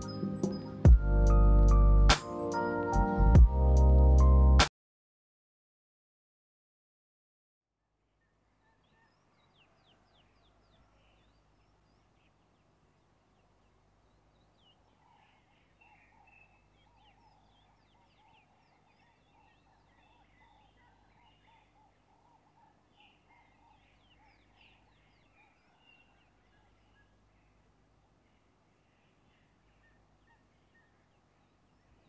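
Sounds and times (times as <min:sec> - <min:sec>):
faint bird calls: 0:08.2 - 0:32.0.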